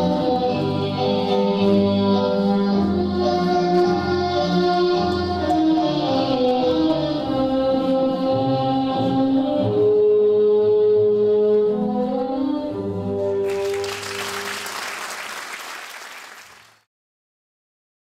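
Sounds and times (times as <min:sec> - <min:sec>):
audience applause: 0:13.5 - 0:16.9.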